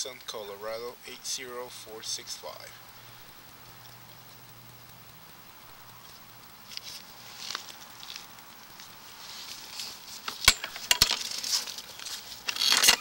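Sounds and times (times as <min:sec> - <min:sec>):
cable scraping and rustling: 0:06.0 - 0:13.0.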